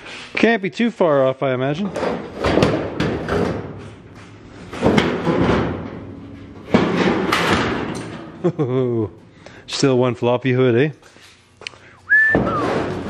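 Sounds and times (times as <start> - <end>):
sheet-metal hood thumping and rattling: 1.9 - 3.9, 4.6 - 8.4, 12.4 - 13.0.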